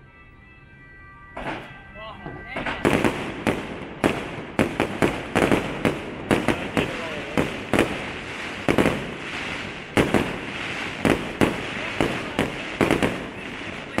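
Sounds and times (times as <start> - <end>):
fireworks bangs: 1.2 - 14.0
fireworks crackle and hiss: 2.6 - 14.0.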